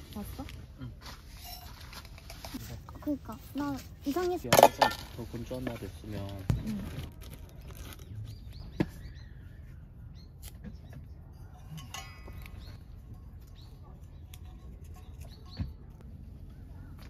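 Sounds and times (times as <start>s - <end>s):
birds chirping: 5.2s - 17.0s
low steady rumble: 11.0s - 17.0s.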